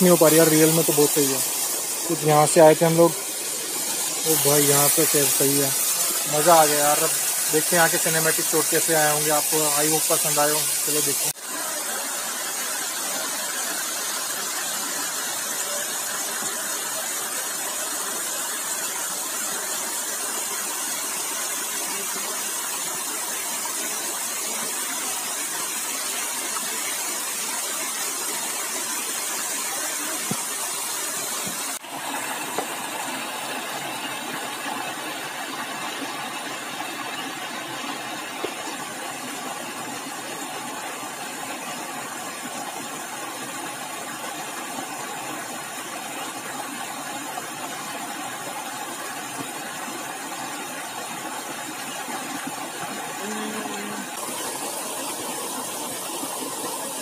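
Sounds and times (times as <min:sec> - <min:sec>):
waterfall rushing: 0:00.0 - 0:17.6, 0:48.1 - 0:57.0.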